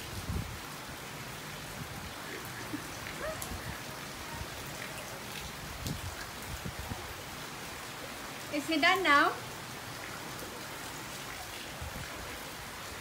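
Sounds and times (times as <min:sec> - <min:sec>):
rain falling on water and foliage: 0:00.0 - 0:13.0.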